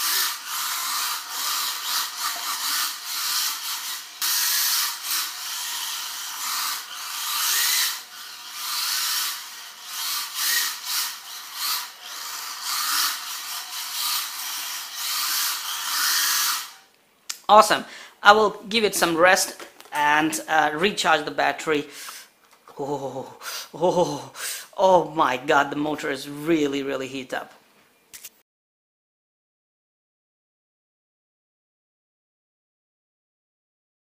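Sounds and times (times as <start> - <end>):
small tyres scrubbing on tile: 0.0 - 16.8
electric motor whirring: 0.0 - 16.9.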